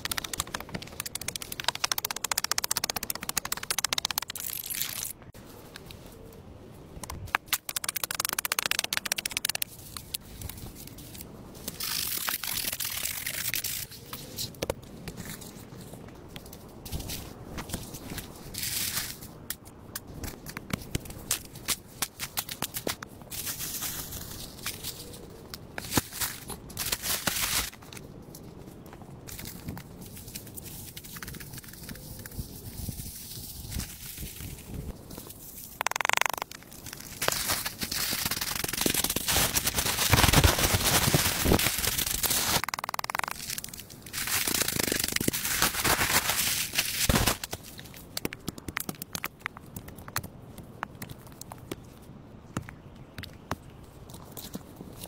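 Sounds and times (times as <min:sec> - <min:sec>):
sharp clicks and scrapes: 0:00.0 - 0:06.0, 0:07.0 - 0:17.2, 0:29.3 - 0:50.3
shovel digging wet earth: 0:35.8 - 0:47.6
footsteps in dry leaves: 0:37.0 - 0:42.6, 0:45.3 - 0:47.5
plastic tarp crinkling underfoot: 0:37.0 - 0:42.6, 0:45.3 - 0:47.5.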